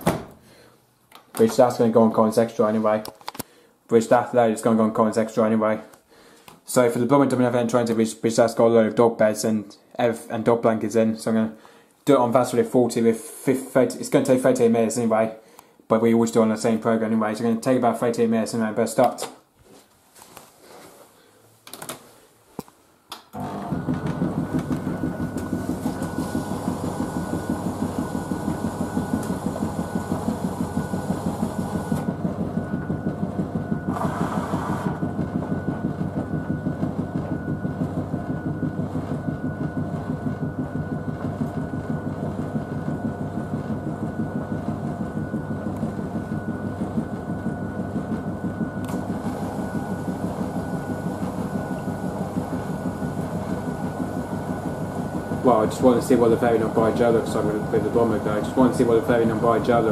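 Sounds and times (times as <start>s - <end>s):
washing machine drum churning: 23.4s - 59.9s.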